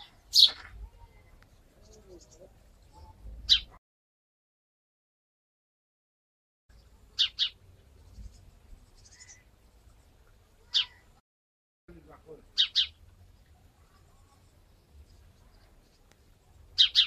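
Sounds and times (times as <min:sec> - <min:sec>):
bird chirping: 0:00.0 - 0:03.8, 0:06.7 - 0:11.2, 0:12.3 - 0:17.0.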